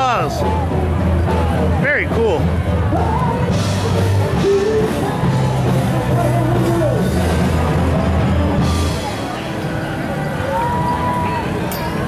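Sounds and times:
loud rock music: 0.0 - 9.4
person singing: 4.3 - 5.6.

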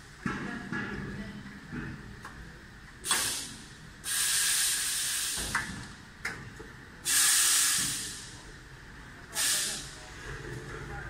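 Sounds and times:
compressed air hissing: 3.0 - 5.6, 7.0 - 8.4, 9.3 - 10.0.

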